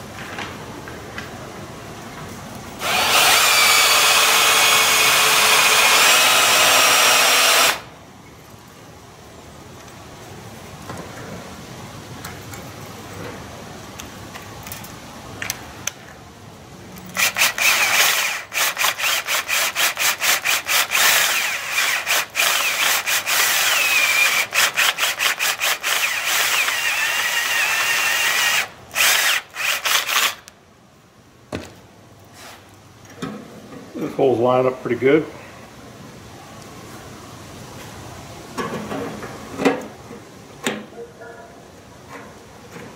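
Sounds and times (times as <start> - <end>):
cordless drill boring sheet metal: 2.8 - 7.9, 17.2 - 30.4
drill bit squealing: 17.2 - 30.3.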